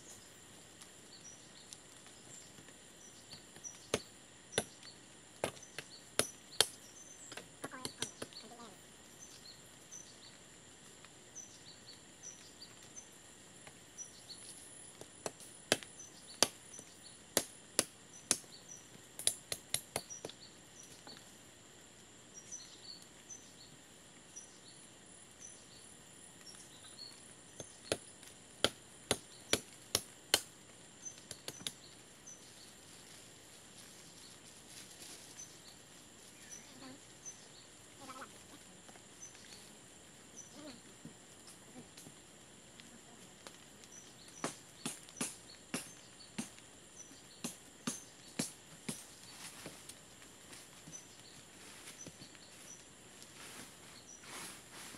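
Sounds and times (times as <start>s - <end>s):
high insect drone: 0.0s - 54.9s
chopping blows on wood: 15.0s - 16.6s, 17.3s - 18.5s, 27.6s - 30.5s, 44.4s - 46.6s, 47.4s - 49.8s
faint bird chirps: 35.2s - 40.9s.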